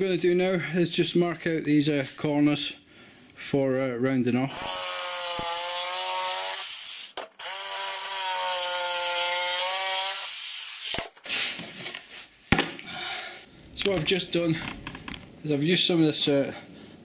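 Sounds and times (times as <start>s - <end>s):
jigsaw cutting chipboard: 4.5s - 11.2s.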